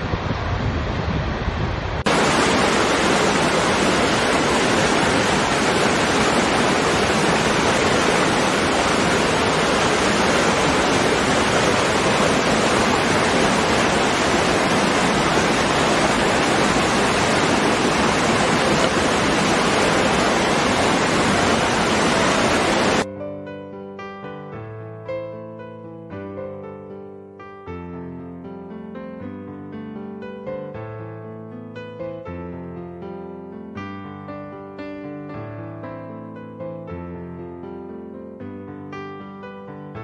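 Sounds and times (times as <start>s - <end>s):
waterfall rushing into pool: 0.0s - 23.1s.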